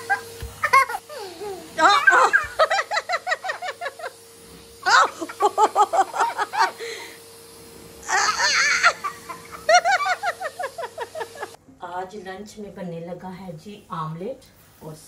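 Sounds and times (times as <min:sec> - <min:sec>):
young boy giggling: 0:00.0 - 0:04.1, 0:04.9 - 0:06.8, 0:08.1 - 0:11.5.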